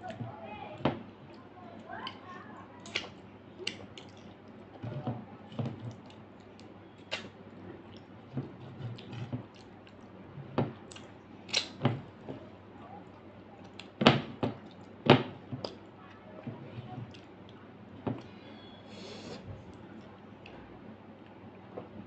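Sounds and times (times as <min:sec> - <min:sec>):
person chewing food: 0:02.8 - 0:04.8, 0:05.6 - 0:11.8, 0:16.9 - 0:18.3
wet lip smacks and mouth clicks: 0:05.9 - 0:07.3, 0:10.9 - 0:11.8.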